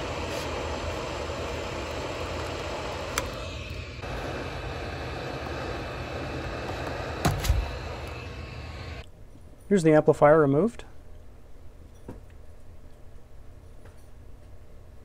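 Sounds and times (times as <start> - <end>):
hot air gun blower hissing: 0.0 - 9.0.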